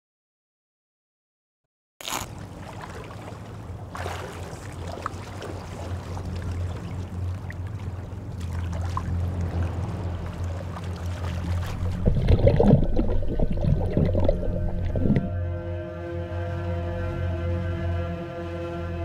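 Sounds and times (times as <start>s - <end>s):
sea water lapping: 2.0s - 15.4s
low steady hum: 2.2s - 19.0s.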